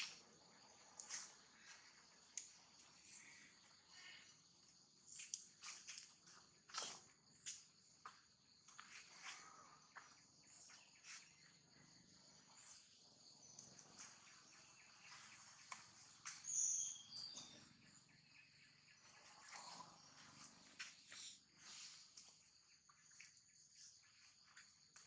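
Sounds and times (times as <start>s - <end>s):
small clicks and rustles: 5.1s - 6.9s.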